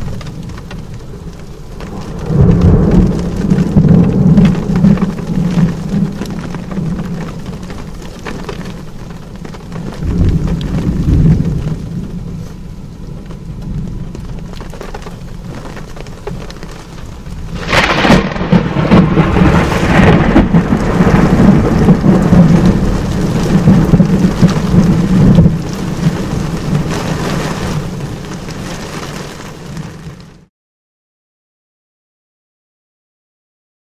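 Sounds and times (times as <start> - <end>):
heavy rain: 0.0 - 30.5
thunder rumbling: 0.0 - 30.5
sharp thunderclap: 1.8 - 7.6, 10.0 - 12.1, 17.4 - 28.0.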